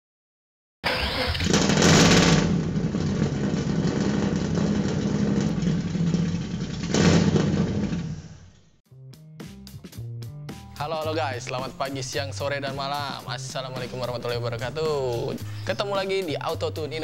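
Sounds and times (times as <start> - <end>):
motorcycle engine revving and idling: 1.0 - 8.6.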